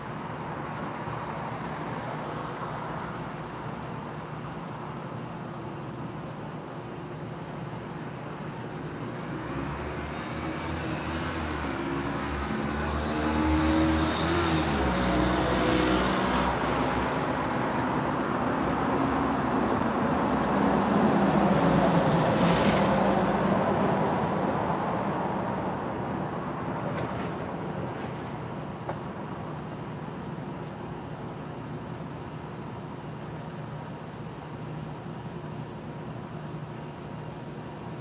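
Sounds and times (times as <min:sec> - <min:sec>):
car passing: 0:09.2 - 0:28.6.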